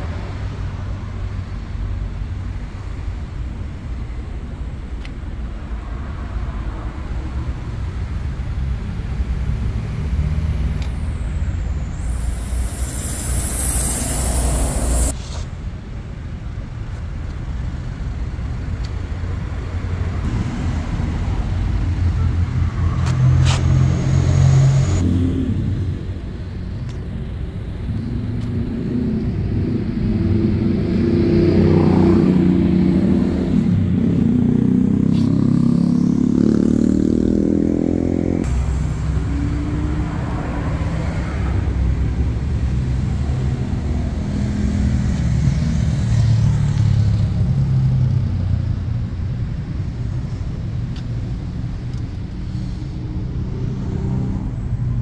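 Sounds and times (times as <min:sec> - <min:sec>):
car engine revving: 0:11.8 - 0:15.1.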